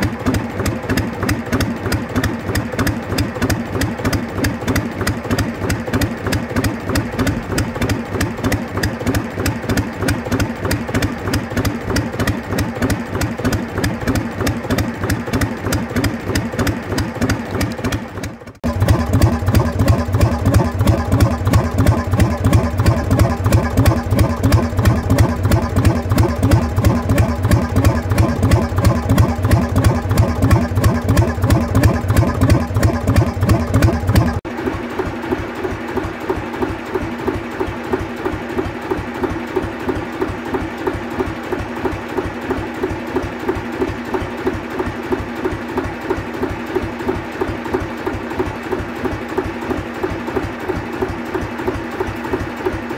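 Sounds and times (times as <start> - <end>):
diesel engine running: 0.0 - 52.9.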